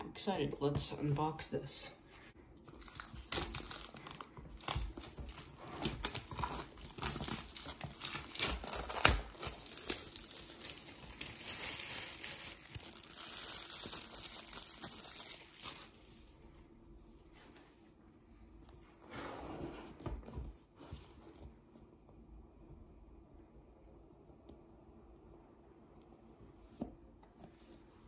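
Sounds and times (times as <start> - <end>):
plastic wrap crinkling: 2.6 - 16.1
plastic wrap snapping: 2.8 - 15.9.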